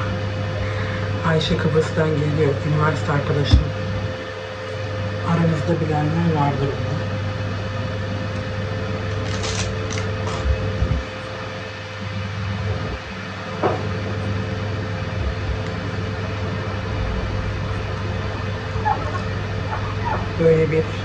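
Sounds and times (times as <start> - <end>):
faint whine: 0.0 - 21.0
low machine hum: 0.0 - 21.0.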